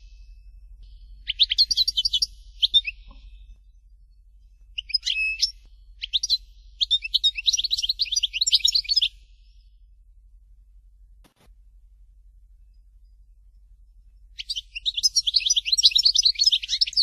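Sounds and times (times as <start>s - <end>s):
goldfinch twittering song: 0.0s - 3.6s, 4.7s - 9.6s, 14.3s - 17.0s.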